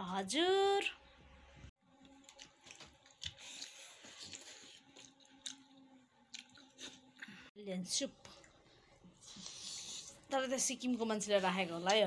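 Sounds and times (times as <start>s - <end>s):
chewing: 2.0s - 7.4s.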